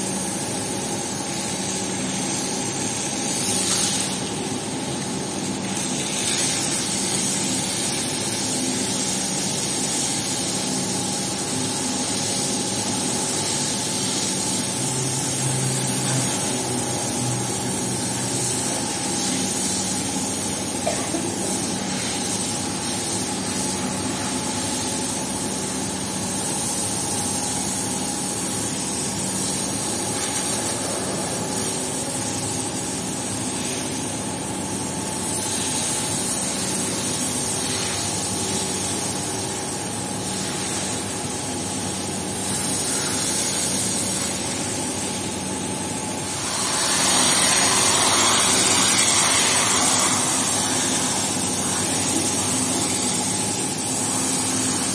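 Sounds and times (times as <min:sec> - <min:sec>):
hose water splashing on tiles: 0:00.0 - 0:54.9
steady machine hum: 0:00.0 - 0:54.9.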